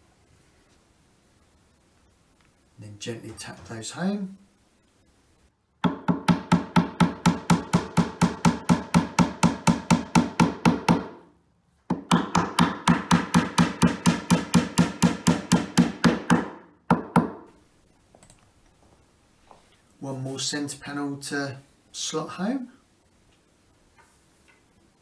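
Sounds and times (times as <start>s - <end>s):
hammer tapping wooden dowels: 5.8s - 11.2s, 11.9s - 17.6s.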